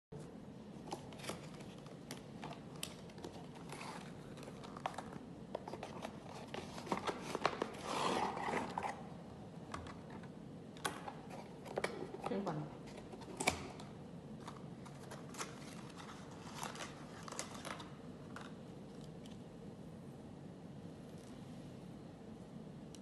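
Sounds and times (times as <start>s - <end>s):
packaging rustling: 14.4s - 18.5s.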